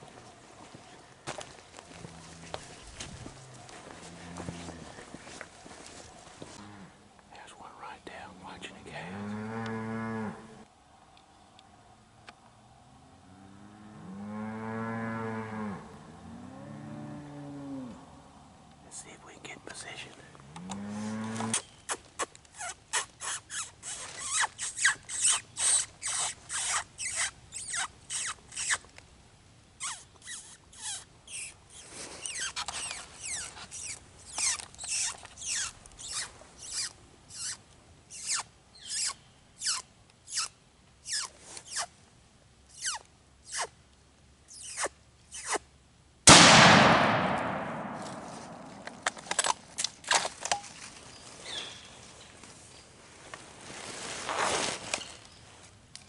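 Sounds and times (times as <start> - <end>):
predator call squealing: 22.6 - 28.8, 32.2 - 40.5
loud echoing gunshot: 46.3 - 49.1.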